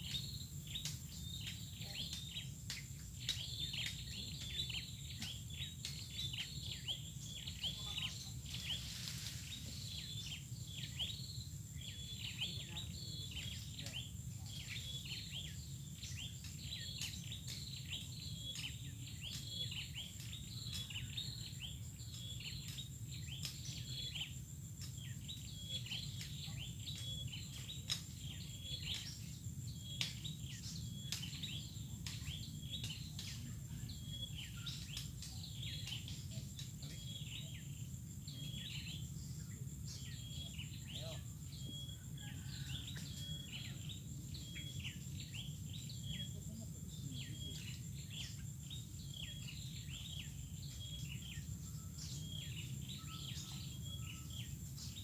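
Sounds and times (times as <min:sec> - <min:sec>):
birds chirping: 0:00.0 - 0:55.0
high insect drone: 0:00.0 - 0:55.0.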